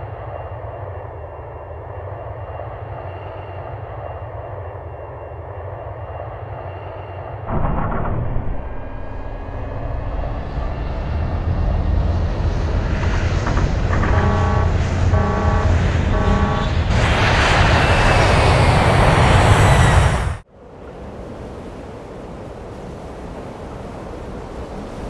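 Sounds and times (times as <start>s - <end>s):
aircraft engine rumble: 7.4s - 20.5s
loud jet roar: 7.5s - 20.5s
pulsing tone: 13.3s - 17.0s.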